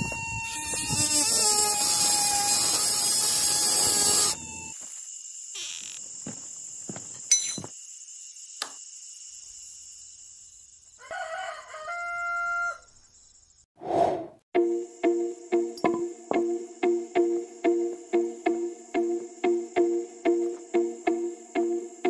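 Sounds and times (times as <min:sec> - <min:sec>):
rooster crowing: 0:11.0 - 0:12.9.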